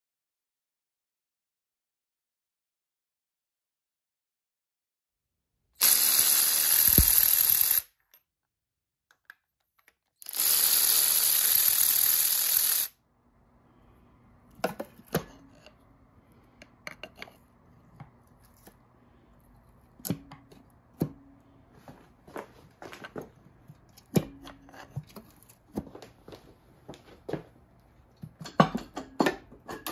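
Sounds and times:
power tool running: 5.8 - 7.9, 10.2 - 13.0
faint hum: 13.0 - 28.2
metal tool clicks and knocks: 16.6 - 17.4, 28.2 - 29.9.

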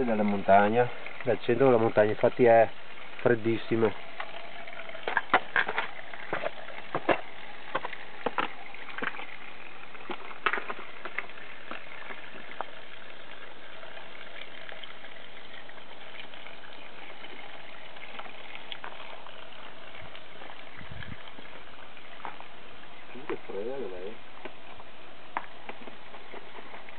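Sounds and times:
water running from a pipe: 0.0 - 26.9
footsteps on gravel: 24.4 - 26.9.

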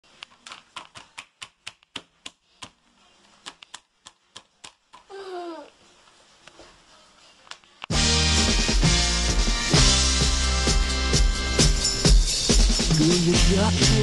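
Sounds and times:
toddler vocal sound: 5.0 - 5.8.

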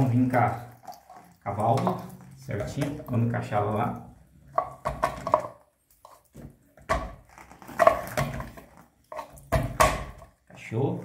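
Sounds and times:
plastic fittings knocking and clicking: 4.5 - 5.6, 9.4 - 10.4
plastic creaking: 6.4 - 8.9.

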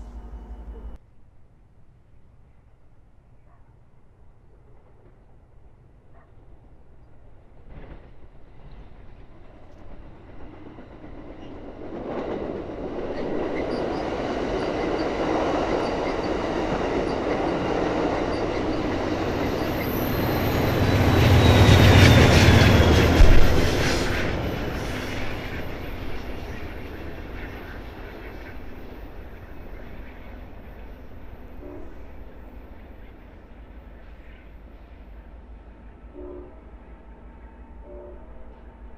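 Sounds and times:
diesel locomotive rumble: 0.0 - 1.0, 16.3 - 34.2
train clattering on rails: 7.6 - 33.3.

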